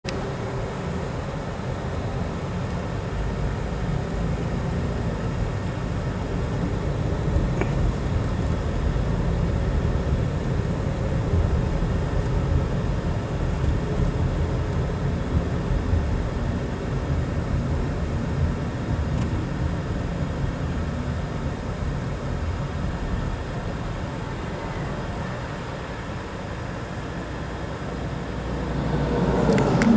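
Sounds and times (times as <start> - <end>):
car driving heard from cabin: 0.0 - 29.9.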